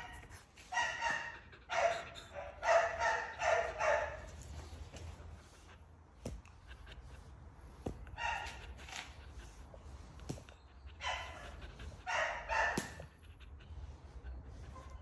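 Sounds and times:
dog barking high-pitched: 0.0 - 4.2, 8.2 - 8.6, 12.1 - 13.1.

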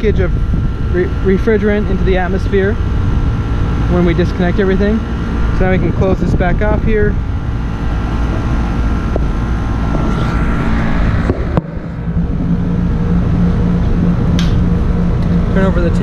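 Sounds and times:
air conditioner unit humming: 0.0 - 16.0
sharp click: 14.4 - 14.6.

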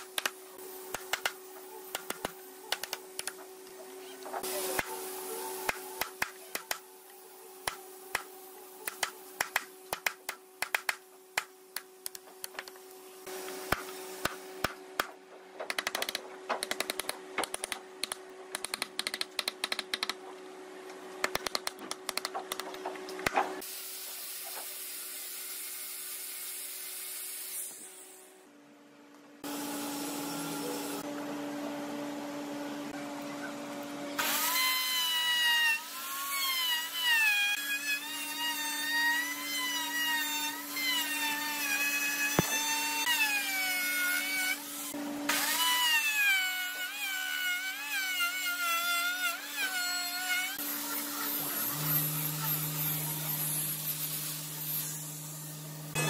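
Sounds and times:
router whining cutting wood: 34.2 - 56.0.

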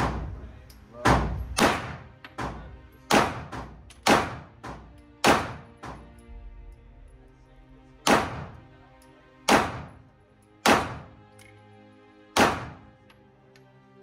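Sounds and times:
quiet background music: 0.0 - 14.0
handgun shots with echo: 1.0 - 2.5, 3.1 - 4.5, 5.2 - 5.7, 8.0 - 8.6, 9.5 - 10.0, 10.6 - 11.2, 12.4 - 12.9.

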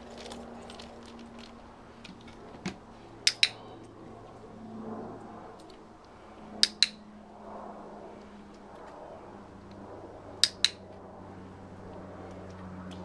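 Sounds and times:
dog-training clicker: 3.2 - 3.6, 6.6 - 7.0, 10.4 - 10.8.

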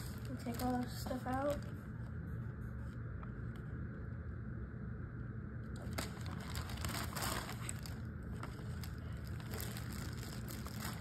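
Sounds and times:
steady low hum: 0.0 - 11.0
packaging rustling and clicking: 5.8 - 11.0.

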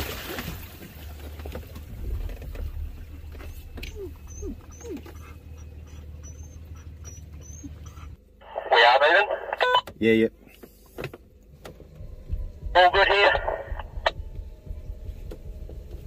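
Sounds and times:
car engine idling: 0.6 - 16.0
short falling whines: 2.0 - 7.8.

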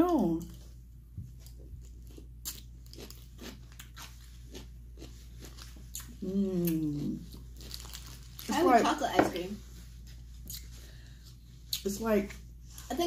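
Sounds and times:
pickle crunching: 1.4 - 9.1.

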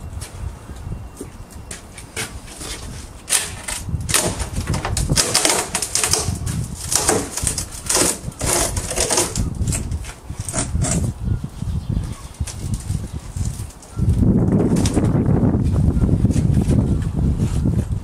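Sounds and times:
wood cracking and creaking: 1.6 - 11.2, 12.0 - 15.3.

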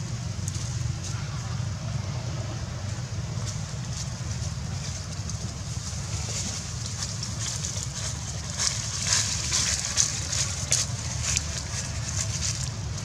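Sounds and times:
leaves and twigs rustling: 3.0 - 13.0.

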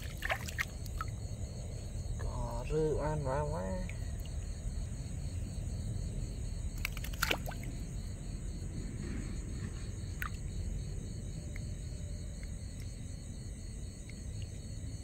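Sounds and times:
constant low rumble: 0.0 - 15.0
insects trilling: 0.0 - 15.0.

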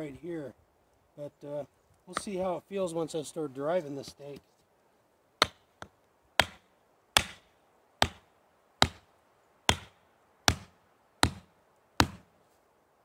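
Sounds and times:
hatchet knocking wooden stake: 5.4 - 6.6, 7.2 - 8.2, 8.8 - 9.1, 9.7 - 12.3.

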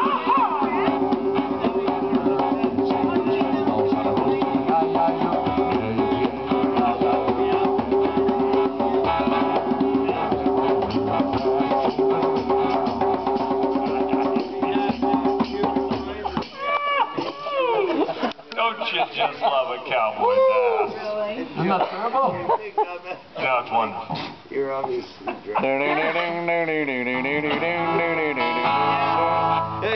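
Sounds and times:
man singing: 0.0 - 16.6, 25.6 - 29.6
djembe drumming: 0.0 - 17.8
acoustic guitar: 26.1 - 29.9.

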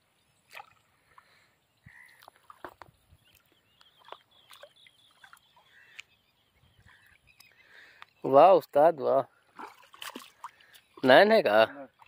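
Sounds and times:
faint bird chirps: 0.0 - 8.6.

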